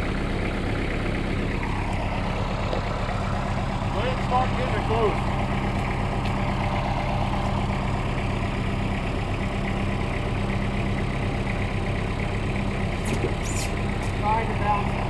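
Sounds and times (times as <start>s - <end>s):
tractor diesel engine running: 0.0s - 15.0s
high-pitched squeaks: 13.0s - 13.8s.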